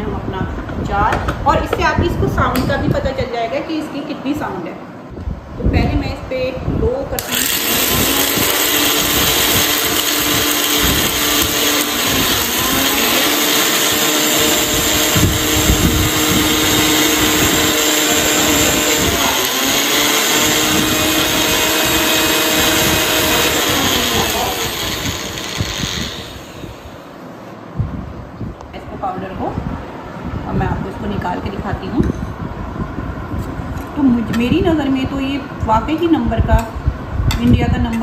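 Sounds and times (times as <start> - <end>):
mixer grinder motor whine: 7.2 - 27.1.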